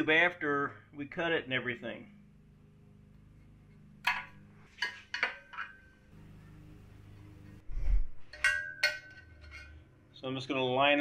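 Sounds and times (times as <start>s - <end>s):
metal tools clinking: 8.3s - 9.8s.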